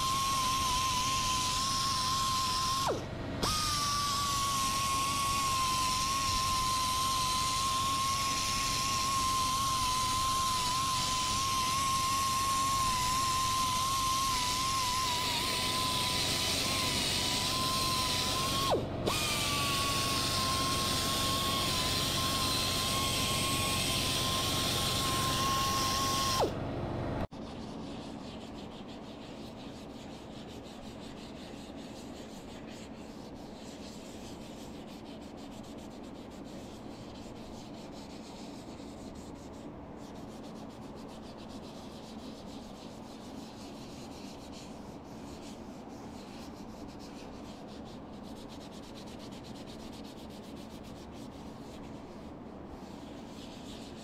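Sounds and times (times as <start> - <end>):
air blow gun hissing: 0.0 - 26.6
sandpaper rubbing spinning wood: 0.0 - 26.6, 27.3 - 54.0.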